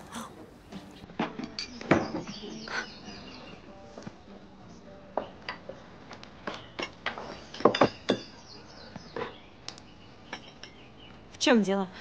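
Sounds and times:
glassware and utensils clinking: 0:07.5 - 0:08.4.

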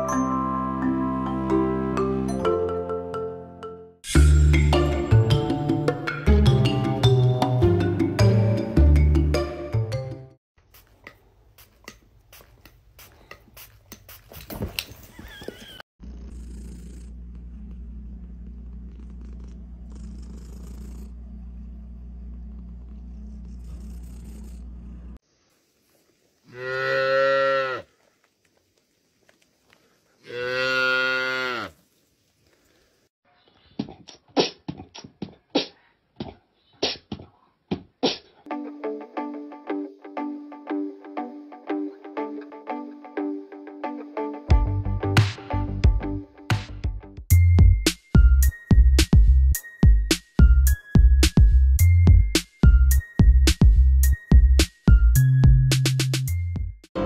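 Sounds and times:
steady low hum: 0:16.0 - 0:25.2.

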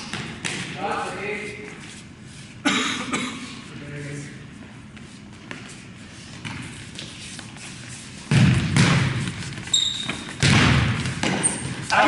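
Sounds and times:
ball kicked and thudding on floor: 0:08.3 - 0:09.4, 0:10.1 - 0:11.6
sneaker squeak on floor: 0:09.6 - 0:10.5, 0:11.2 - 0:11.7.

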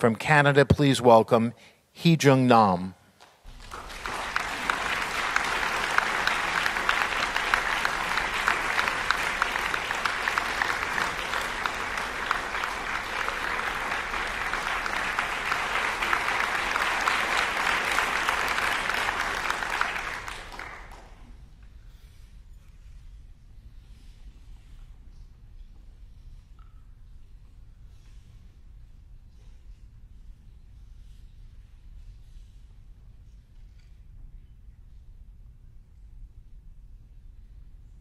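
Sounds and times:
audience applauding: 0:03.5 - 0:21.4.

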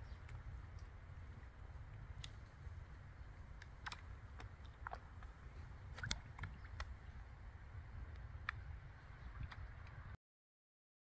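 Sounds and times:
fish smacking at water surface: 0:05.9 - 0:06.9.

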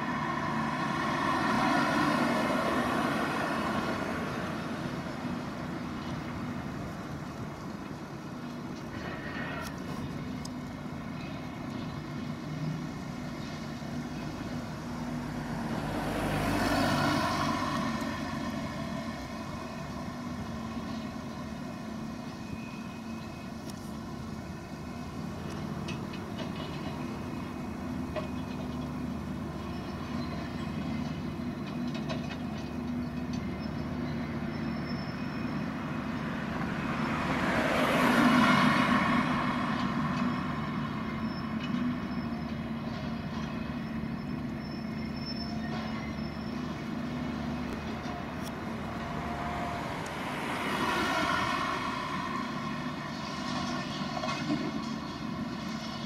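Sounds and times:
car passing: 0:00.0 - 0:06.8, 0:13.7 - 0:20.9, 0:35.7 - 0:41.3, 0:46.6 - 0:54.8
excavator diesel engine running: 0:00.0 - 0:56.0.

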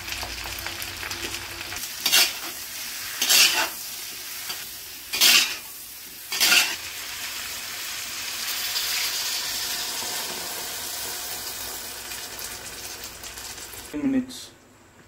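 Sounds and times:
vegetables sizzling in a wok: 0:00.0 - 0:14.0
spatula scraping a wok: 0:01.9 - 0:06.9
broth poured into hot pan: 0:06.9 - 0:13.9.

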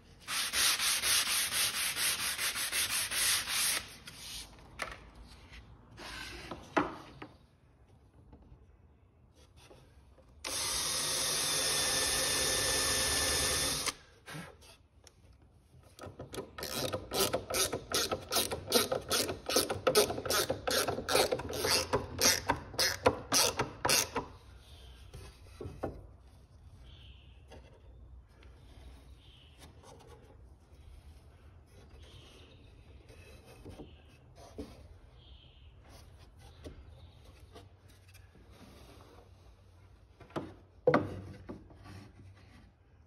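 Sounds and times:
cordless drill boring into wood: 0:10.4 - 0:14.0.

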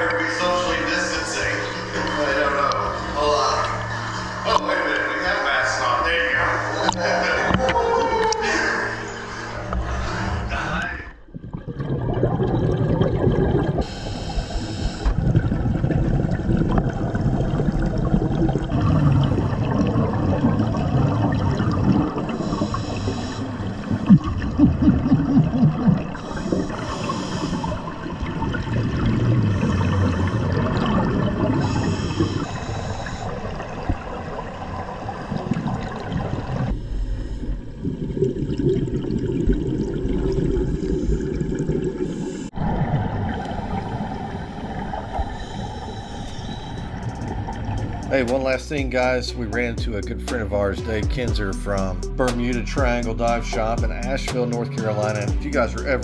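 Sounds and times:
underwater bubbling and gurgling: 0:00.0 - 0:50.2
low rumble: 0:00.0 - 0:54.2
regulator hiss: 0:13.8 - 0:15.2, 0:22.4 - 0:23.8, 0:26.2 - 0:28.0.

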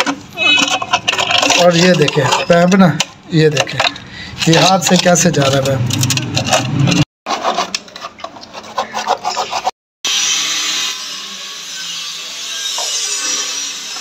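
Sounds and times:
hand scraping on pipe and masonry: 0:00.0 - 0:09.8.

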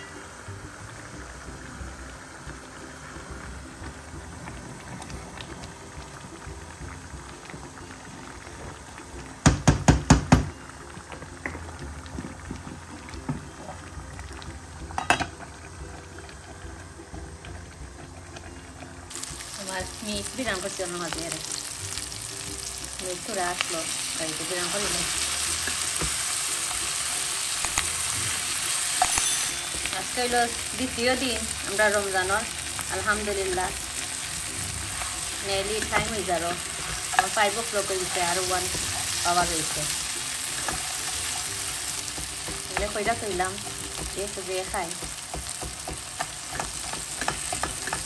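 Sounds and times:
meat and onions sizzling: 0:00.0 - 0:48.0.

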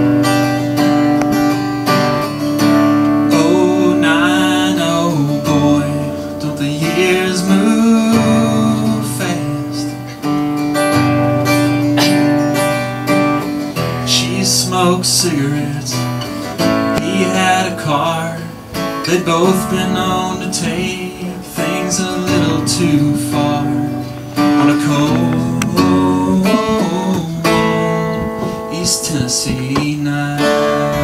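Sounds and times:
acoustic guitar strumming: 0:00.0 - 0:31.0
man singing: 0:03.2 - 0:10.3, 0:13.8 - 0:31.0.

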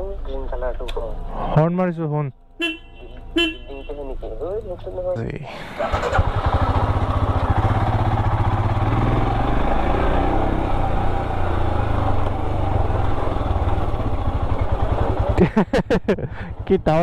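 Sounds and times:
motorcycle engine running: 0:05.8 - 0:17.0.

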